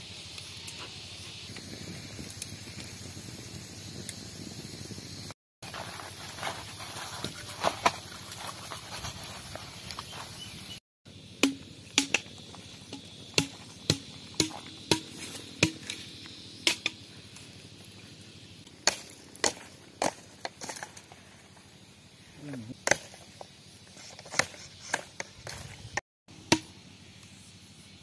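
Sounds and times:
steady hiss with clicks: 0.0 - 5.2, 26.8 - 28.0
sharp chopping knocks: 11.4 - 12.3.

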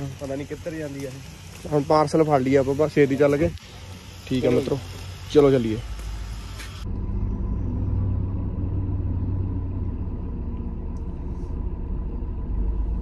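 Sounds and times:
car engine rumble inside cabin: 6.8 - 13.0.

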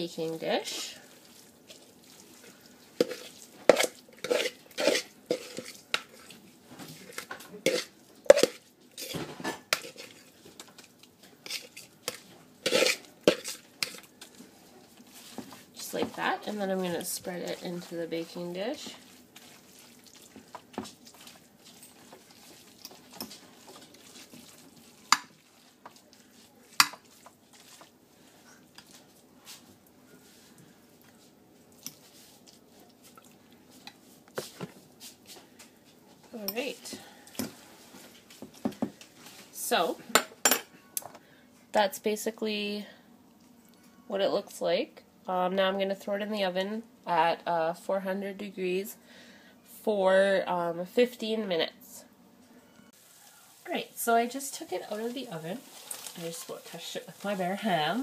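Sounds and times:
wet food mixture squishing: 0.0 - 36.4, 53.0 - 58.0
utensil scraping bowl: 3.0 - 10.7, 11.4 - 14.4
utensil clinking on bowl and dish: 26.7 - 27.9.

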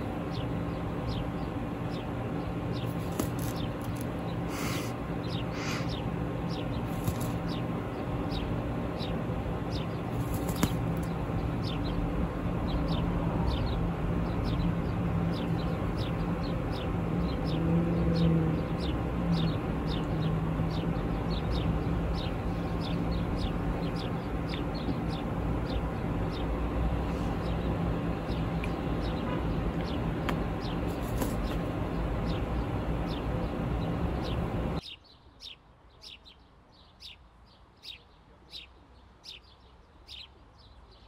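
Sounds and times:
parakeet chick begging chirps: 0.3 - 17.6, 18.2 - 26.6.

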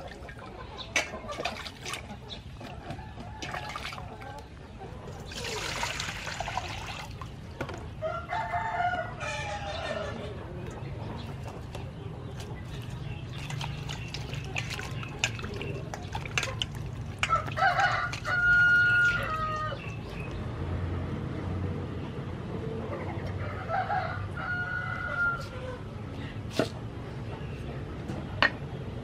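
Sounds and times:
rooster crowing: 8.0 - 10.2, 17.3 - 19.8, 23.5 - 25.5
vegetables splashing in water: 12.5 - 20.3.

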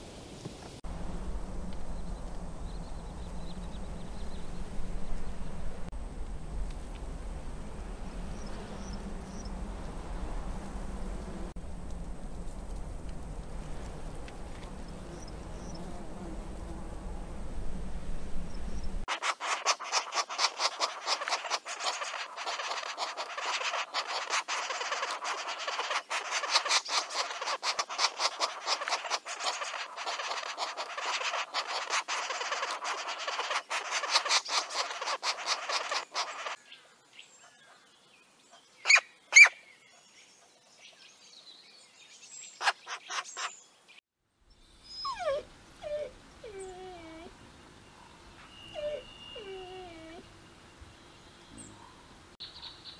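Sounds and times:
faint low rumble: 0.8 - 19.1
nestling birds begging chatter: 18.8 - 36.6, 42.4 - 43.7, 45.9 - 52.9
short sharp bird calls: 19.2 - 36.6.

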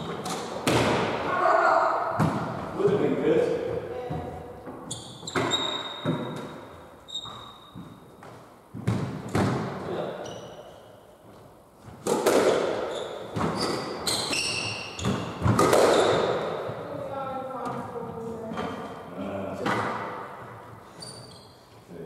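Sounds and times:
squash ball hitting rackets and walls: 0.0 - 1.4, 2.0 - 21.3
shoes squeaking on wooden floor: 3.7 - 12.1, 12.7 - 17.0, 20.2 - 21.9.

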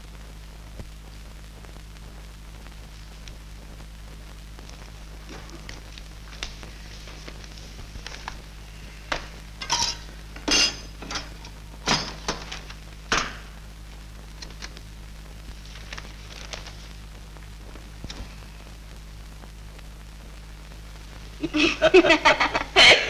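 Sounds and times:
steady low hum: 0.0 - 23.0
metal containers clinking: 9.6 - 12.3.

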